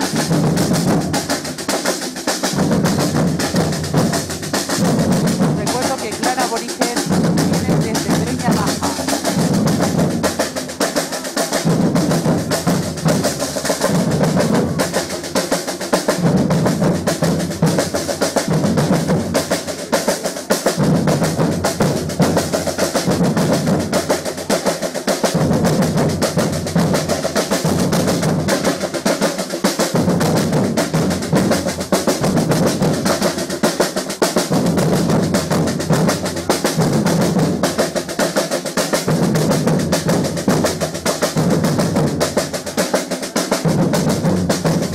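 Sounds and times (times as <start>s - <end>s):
snare drums rattling: 0.0s - 44.9s
deep bass drum beats: 2.5s - 10.6s.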